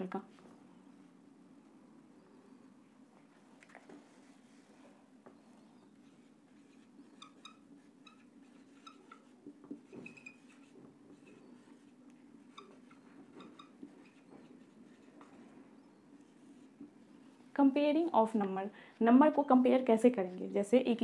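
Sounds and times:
low steady hum: 0.0s - 21.0s
marker pen squeaking on whiteboard: 5.3s - 17.5s.

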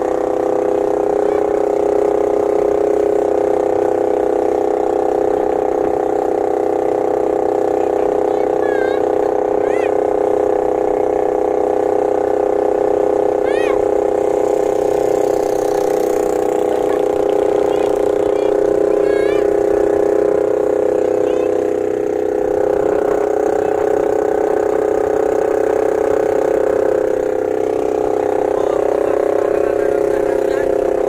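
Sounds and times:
boat engine running: 0.0s - 31.0s.

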